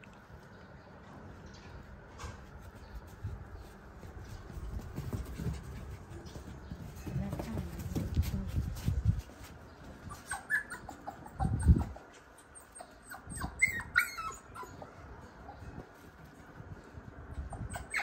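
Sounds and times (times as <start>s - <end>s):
puppy whimpering: 10.0s - 15.0s, 17.4s - 18.0s.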